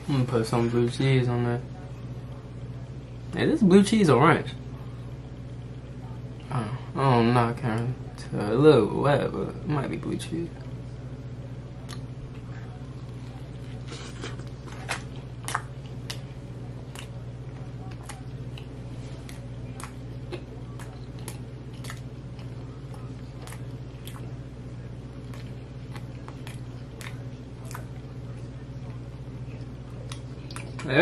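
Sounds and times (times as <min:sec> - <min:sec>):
person chewing food: 0:11.8 - 0:31.0.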